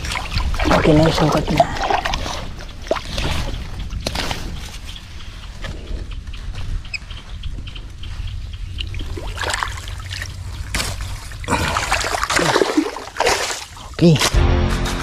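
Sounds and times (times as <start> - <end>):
water splashes: 0.0 - 4.8, 8.8 - 14.4
water trickling and sloshing: 0.0 - 6.5, 7.6 - 14.2.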